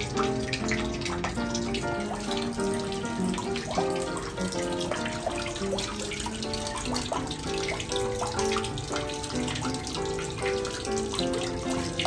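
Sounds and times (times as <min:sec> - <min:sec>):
melodic background music: 0:00.0 - 0:12.0
tap water pouring into tub: 0:00.0 - 0:12.0.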